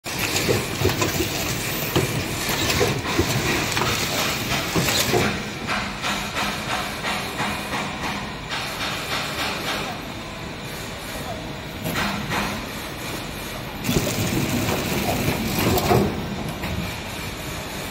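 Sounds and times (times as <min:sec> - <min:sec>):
packing machine clattering: 0:00.0 - 0:08.0, 0:13.7 - 0:16.9.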